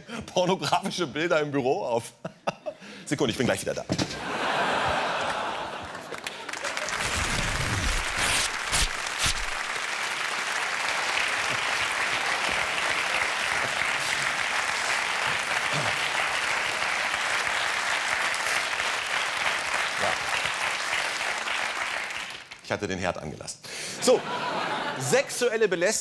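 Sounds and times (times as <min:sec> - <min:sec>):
audience applauding: 0:04.3 - 0:22.7.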